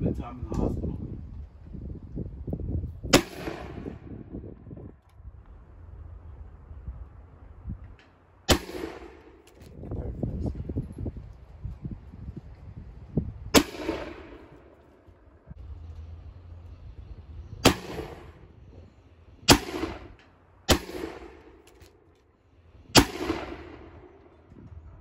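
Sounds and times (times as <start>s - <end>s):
musket shots: 3.1s - 4.2s, 8.0s - 9.7s, 13.5s - 15.1s, 17.6s - 18.4s, 19.4s - 22.2s, 22.9s - 24.4s.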